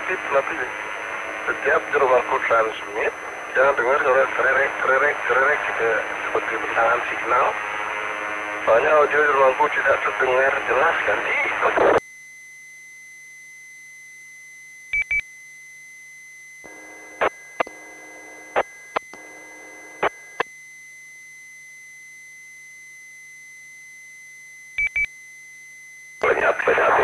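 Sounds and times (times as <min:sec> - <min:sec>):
steady faint high tone: 0:00.0 - 0:11.8
buzzing hum: 0:00.0 - 0:27.0
quick beeps: 0:24.8 - 0:25.1.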